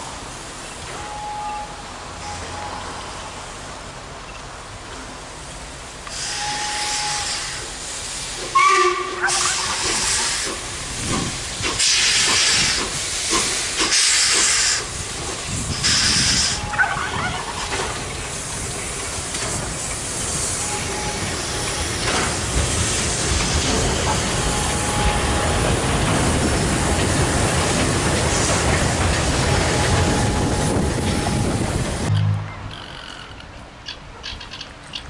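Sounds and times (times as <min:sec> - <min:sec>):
steam hissing: 0:06.1 - 0:32.1
wheels clattering on rails: 0:09.3 - 0:35.0.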